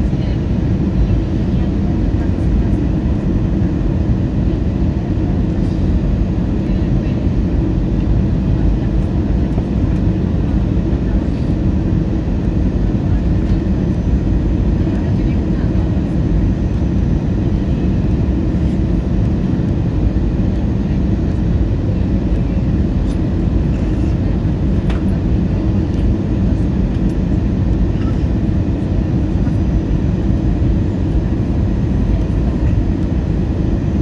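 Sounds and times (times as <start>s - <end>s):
jet engines rumbling: 0.0s - 34.0s.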